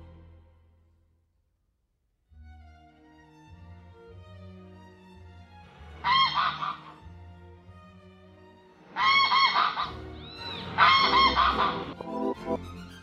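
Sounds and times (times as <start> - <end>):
soft violin music: 0.0 - 0.6, 2.3 - 9.3, 10.0 - 13.0
bird honking: 6.0 - 7.0, 9.0 - 12.0.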